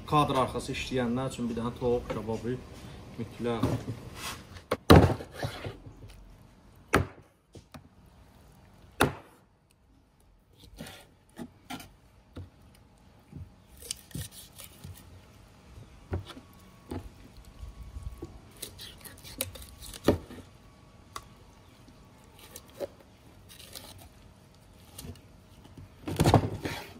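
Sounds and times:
knife chopping on wooden board: 9.0 - 9.4.

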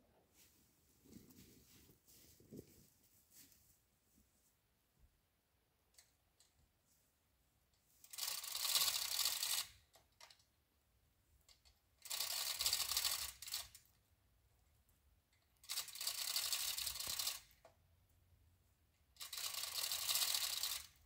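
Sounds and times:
chain hoist rattling and clicking: 8.0 - 10.4, 11.5 - 13.9, 15.6 - 17.6, 19.2 - 21.0.

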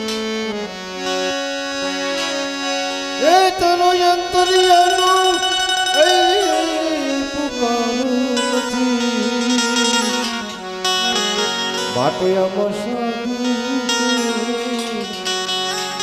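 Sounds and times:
banjo: 0.0 - 16.0
long wavering melody notes: 1.8 - 16.0
tabla drumming: 4.4 - 7.2
hand cymbals: 4.5 - 7.2.

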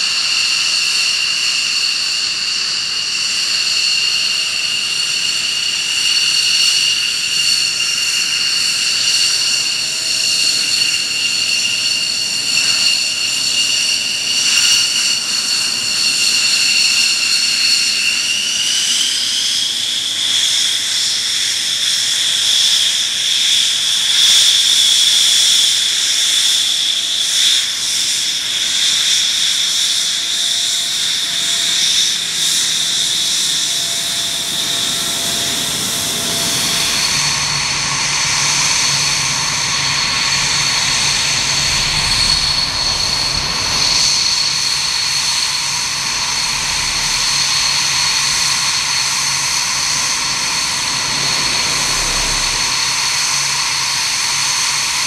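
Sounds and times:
jet engine whining: 0.0 - 55.0
low engine rumble: 33.9 - 53.9.

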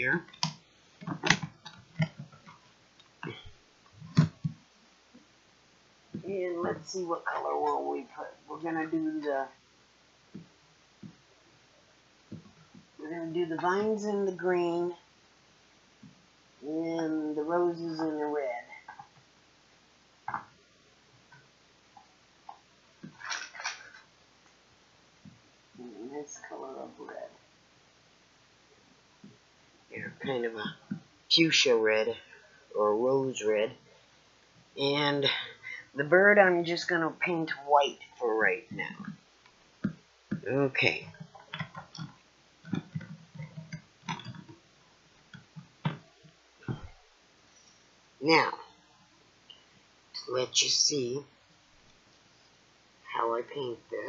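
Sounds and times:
handling noise knocks and clicks: 0.3 - 2.6, 41.1 - 44.6.

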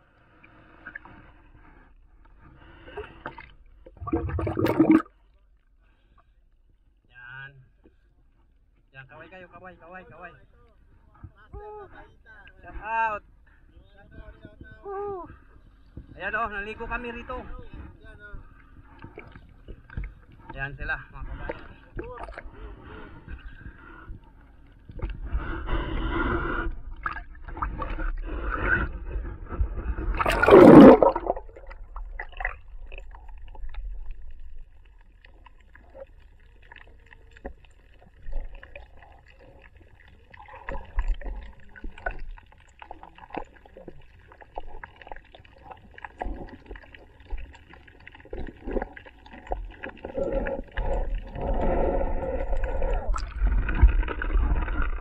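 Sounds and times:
water sloshing and gurgling: 0.0 - 6.4, 15.4 - 55.0
faint underwater clicks: 26.7 - 55.0
rush of water: 30.2 - 34.1.

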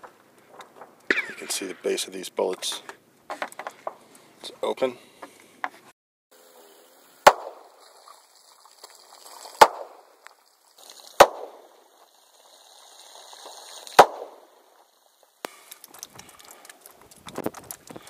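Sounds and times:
pistol shots with echo: 11.2 - 11.7.

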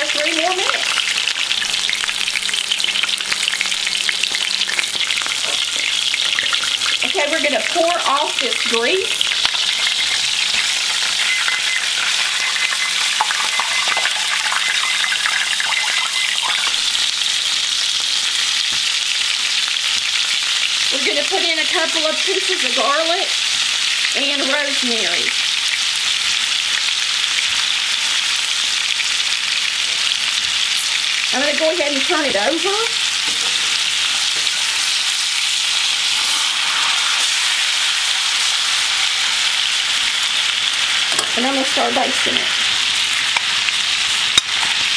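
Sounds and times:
steak sizzling in oil: 0.0 - 44.9.

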